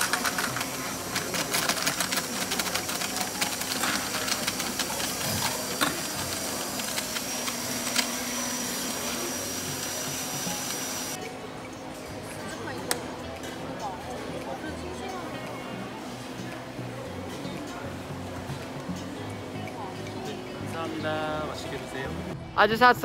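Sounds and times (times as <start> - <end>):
blender motor whirring: 0.0 - 11.2.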